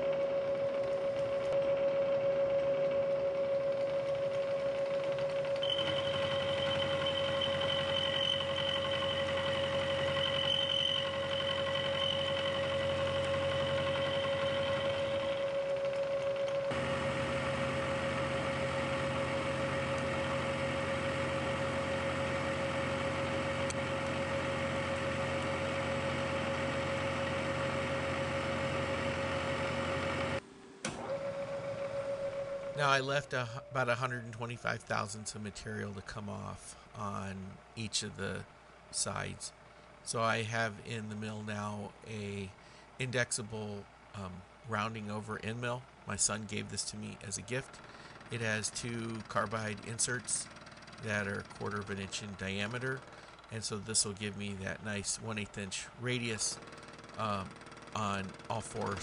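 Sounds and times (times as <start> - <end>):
milling machine whine: 0.0 - 59.0.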